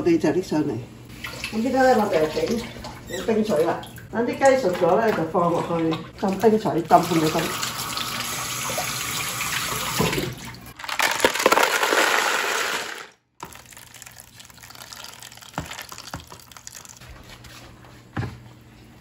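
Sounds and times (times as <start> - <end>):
ice cubes clinking: 10.8 - 17.0
tap running into bowl: 15.5 - 16.5.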